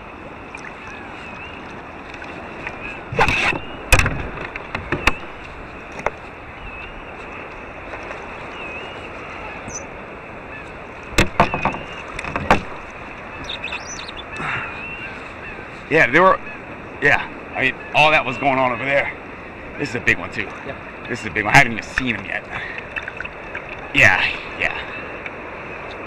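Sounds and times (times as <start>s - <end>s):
water noise: 0.0s - 26.0s
wind: 0.0s - 26.0s
knocks and clicks from boat: 1.6s - 6.2s, 11.1s - 13.8s, 21.9s - 23.9s.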